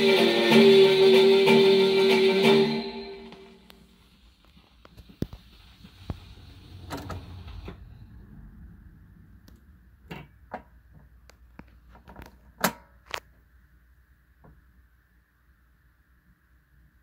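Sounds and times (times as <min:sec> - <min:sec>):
turntable low rumble: 0:03.6 - 0:12.3.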